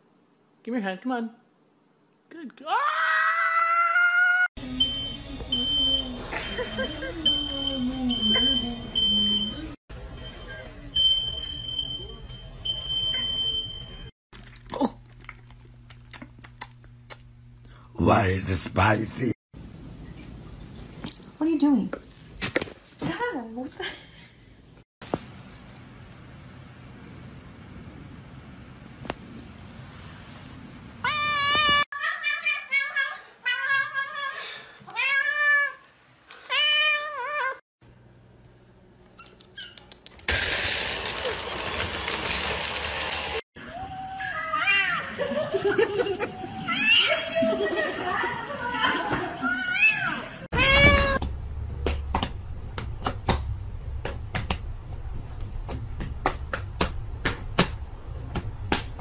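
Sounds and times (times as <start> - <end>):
cat meowing loudly: 31.0 - 34.0, 49.8 - 51.2.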